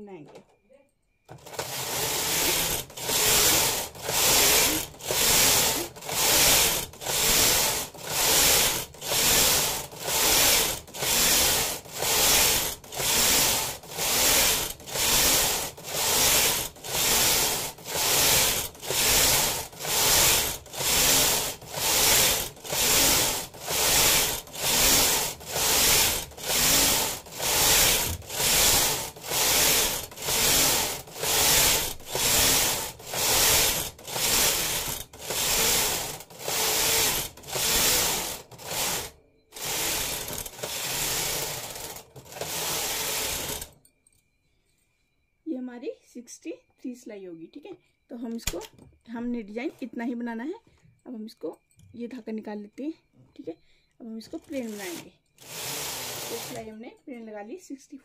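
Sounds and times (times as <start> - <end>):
knitting machine carriage clattering: 1.3 - 43.8, 54.3 - 56.8.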